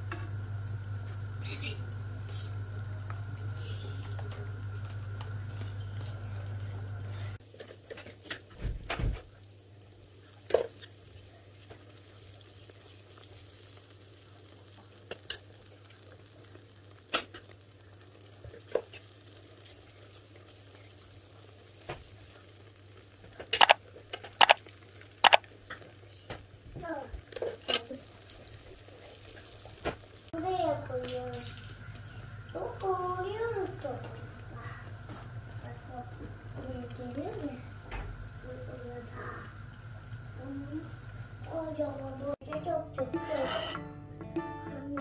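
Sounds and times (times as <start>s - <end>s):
steady hum: 0.0s - 7.4s, 23.4s - 25.5s, 29.6s - 42.4s
oil sizzling in a frying pan: 0.0s - 42.5s
utensils clicking against pan: 23.4s - 24.6s, 25.2s - 25.8s.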